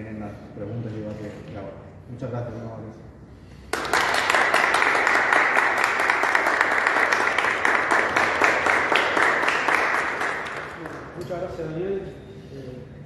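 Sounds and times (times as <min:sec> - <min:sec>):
audience applauding: 0:03.7 - 0:11.2.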